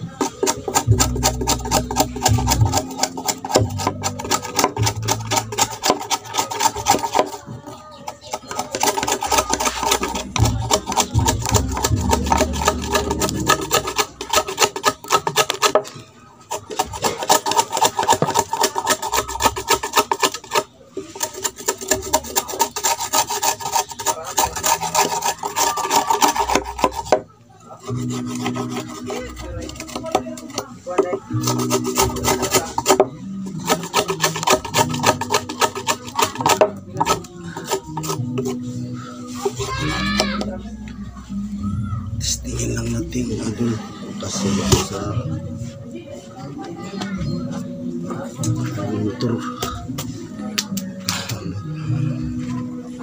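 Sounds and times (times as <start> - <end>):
hand tool scraping wood: 0.1 - 27.2, 27.8 - 40.5.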